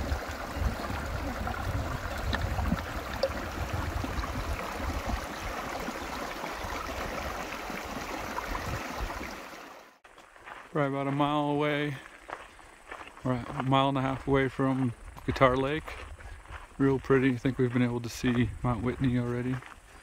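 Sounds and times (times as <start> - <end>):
creek running over rocks: 0.0 - 20.0.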